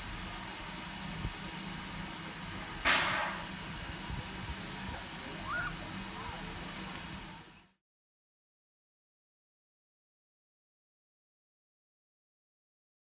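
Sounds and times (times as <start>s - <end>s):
loud blast of escaping steam: 0.0s - 7.6s
steam hissing: 0.0s - 7.7s.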